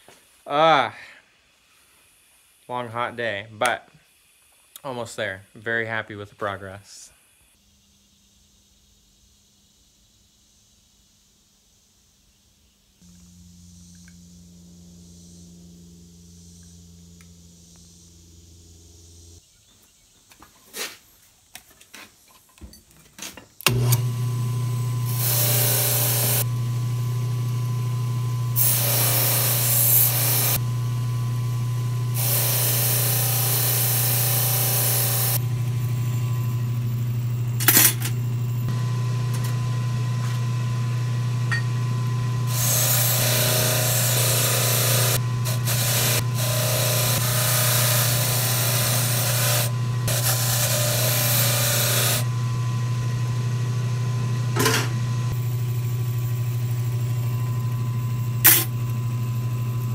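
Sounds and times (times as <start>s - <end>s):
sander motor humming: 13.0s - 19.4s, 23.7s - 59.9s.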